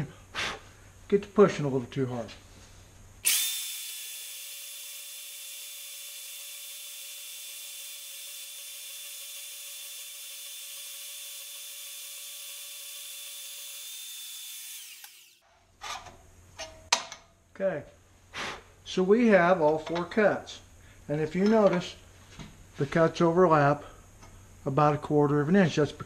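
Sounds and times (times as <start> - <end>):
band saw cutting steel: 3.2 - 15.4.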